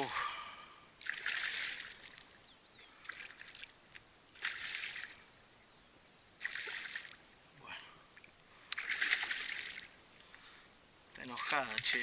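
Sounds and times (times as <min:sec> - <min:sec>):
fish splashing in water: 0:01.0 - 0:02.4, 0:04.4 - 0:05.2, 0:06.4 - 0:07.2, 0:08.8 - 0:10.0.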